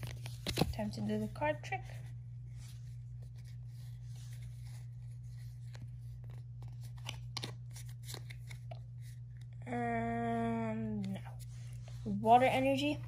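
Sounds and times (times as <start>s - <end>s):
low steady hum: 0.0s - 13.0s
cards sliding and clicking: 3.2s - 9.4s.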